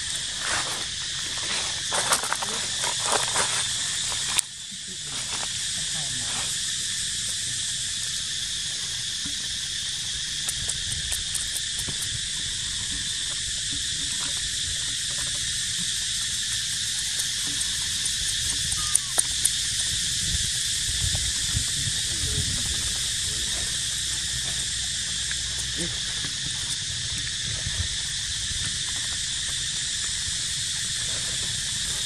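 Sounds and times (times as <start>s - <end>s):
insects droning: 0.0s - 32.0s
sharp clicks: 10.4s - 12.2s, 17.0s - 20.0s.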